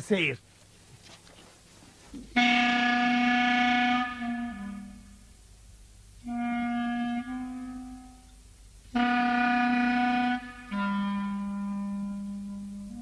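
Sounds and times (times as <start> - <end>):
woodwind holding notes: 2.3 - 5.2, 6.2 - 13.0.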